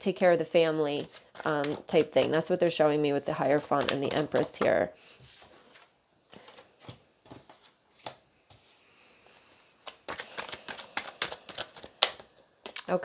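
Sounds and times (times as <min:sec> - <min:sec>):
cards snapping and slapping on table: 0:09.8 - 0:12.9.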